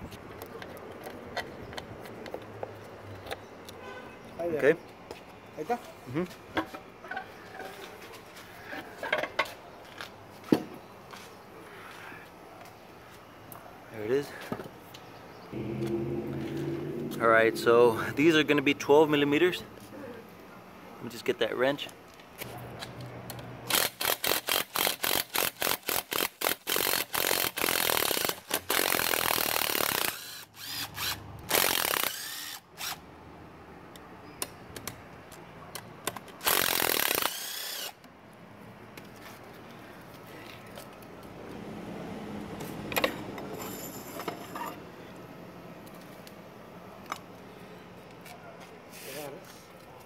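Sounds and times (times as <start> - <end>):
impact driver bursts: 23.7 - 33.0, 36.4 - 38.0.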